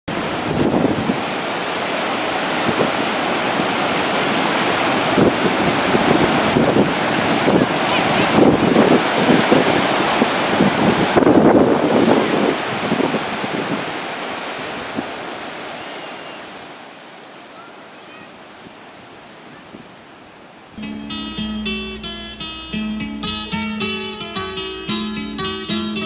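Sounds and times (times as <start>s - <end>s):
wind buffeting microphone: 0.1s - 15.6s.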